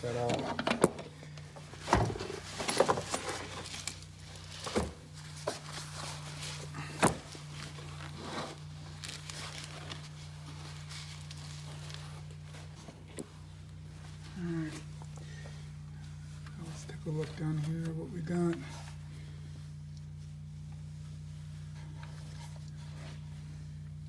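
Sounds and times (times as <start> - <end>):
steady low hum: 0.0 - 24.0
handling rustle: 1.7 - 24.0.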